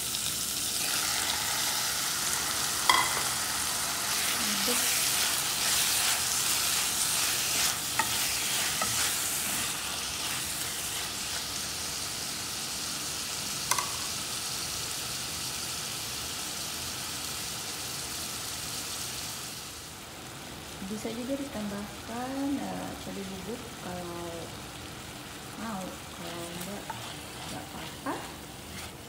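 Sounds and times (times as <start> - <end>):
squid sizzling in hot oil: 0.0 - 29.0
spoon knocking against pot: 2.9 - 3.4, 13.7 - 14.0.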